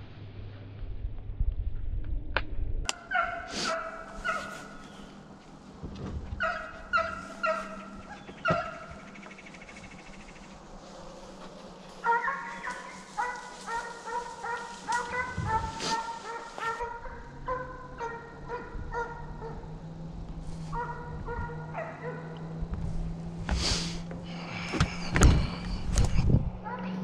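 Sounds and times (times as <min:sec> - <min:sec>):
hounds baying and barking: 0:02.9 - 0:05.3, 0:06.4 - 0:22.9.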